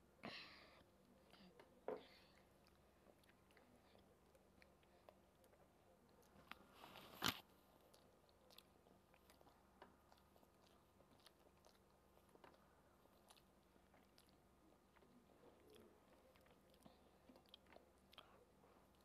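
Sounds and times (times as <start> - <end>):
person chewing: 1.2 - 19.0.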